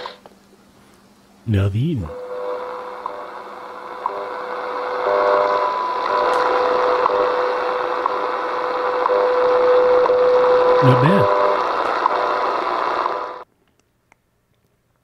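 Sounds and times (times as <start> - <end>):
radio static hiss: 1.4 - 13.4
steady radio tone with ticks: 2.0 - 13.4.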